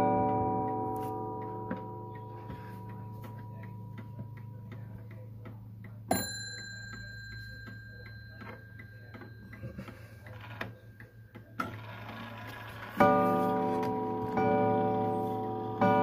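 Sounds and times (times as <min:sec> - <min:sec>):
clock bell strike: 0:00.0 - 0:04.8, 0:06.1 - 0:10.5, 0:13.0 - 0:16.0
mantel clock ticking: 0:00.0 - 0:16.0.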